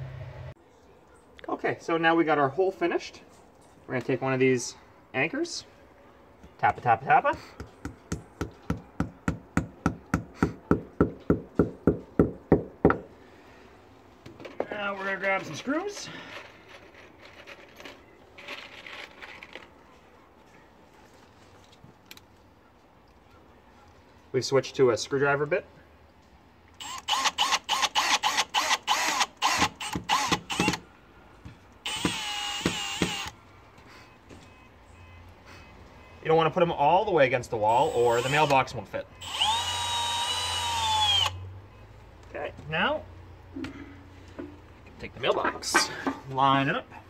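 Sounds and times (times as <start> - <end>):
cordless drill motor whine: 26.8 - 30.8, 31.9 - 33.4, 39.2 - 41.4.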